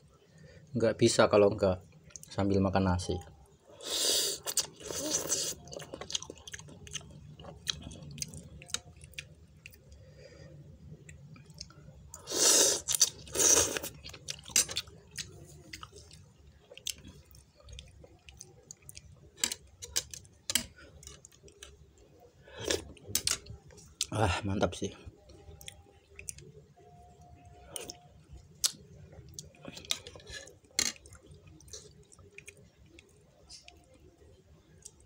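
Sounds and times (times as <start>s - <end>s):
person chewing: 3.9s - 10.0s, 11.0s - 24.1s, 25.2s - 26.6s, 27.4s - 34.0s.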